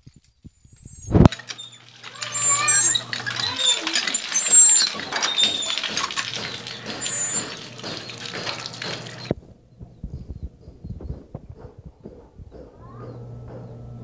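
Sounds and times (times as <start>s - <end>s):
short high squeaks: 0.6s - 9.3s
water running and splashing: 1.0s - 9.4s.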